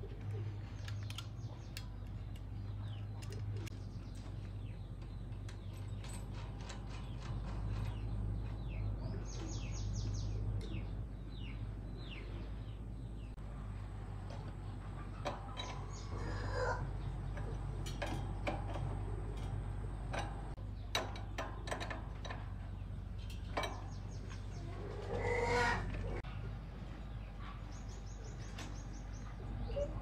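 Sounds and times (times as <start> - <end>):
steady low hum: 0.0 - 30.0
metal parts and tools clicking: 14.2 - 24.5
faint bird calls: 23.8 - 26.4.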